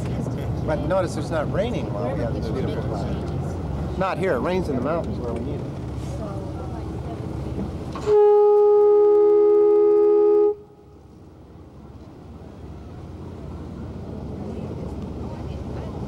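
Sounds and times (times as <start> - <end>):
boat horn blast: 8.0 - 10.9.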